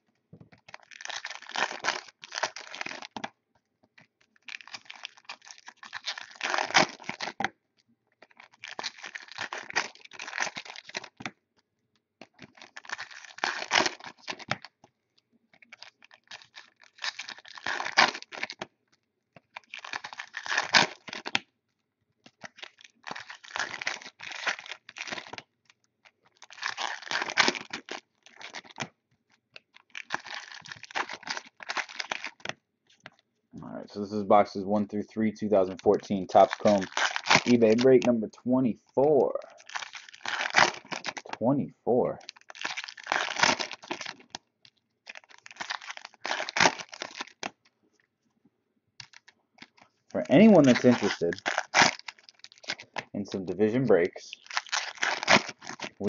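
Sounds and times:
foil packs tearing and crinkling: 0:00.7 - 0:03.3, 0:04.4 - 0:07.5, 0:08.3 - 0:11.3, 0:12.3 - 0:14.7, 0:15.7 - 0:18.7, 0:19.5 - 0:21.4, 0:22.3 - 0:25.4, 0:26.4 - 0:28.9, 0:29.8 - 0:32.5, 0:35.7 - 0:38.1, 0:39.5 - 0:41.4, 0:42.2 - 0:44.4, 0:45.1 - 0:47.6, 0:49.0 - 0:56.0.

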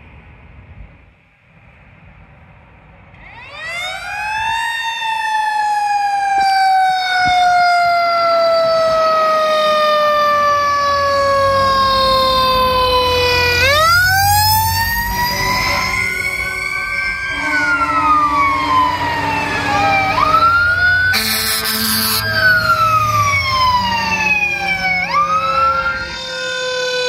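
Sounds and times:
fire truck siren: 0:03.1 - 0:27.0
truck engine rumble: 0:05.6 - 0:26.6.

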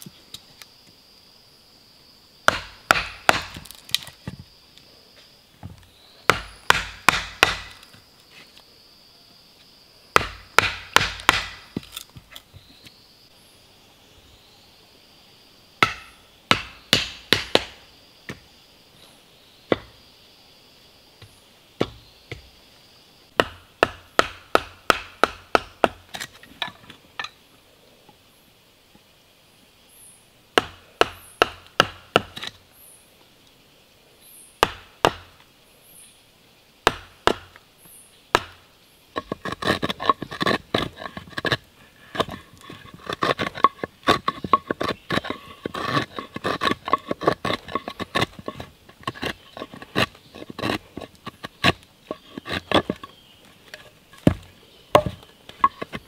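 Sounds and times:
blade chopping into wood: 0:02.5 - 0:04.1, 0:06.3 - 0:07.9, 0:10.2 - 0:12.2, 0:15.8 - 0:18.4, 0:23.4 - 0:26.3, 0:30.6 - 0:32.6, 0:34.6 - 0:35.3, 0:36.9 - 0:37.6, 0:38.3 - 0:38.6, 0:54.2 - 0:56.0
short scraping cuts: 0:39.2 - 0:53.1.

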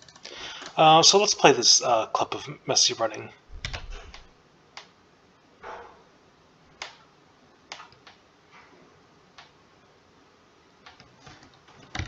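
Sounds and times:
keyboard clicks: 0:03.5 - 0:04.2, 0:07.7 - 0:08.2.

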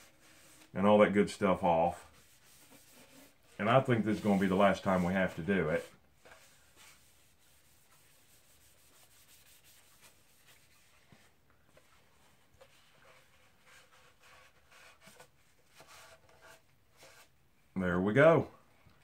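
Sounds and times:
cloth rubbing on wood: 0:01.4 - 0:17.3.

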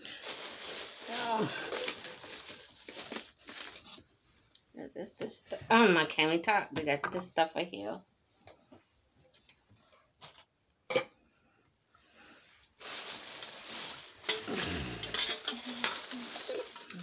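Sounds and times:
plastic rustling: 0:00.0 - 0:04.6, 0:12.7 - 0:17.0.

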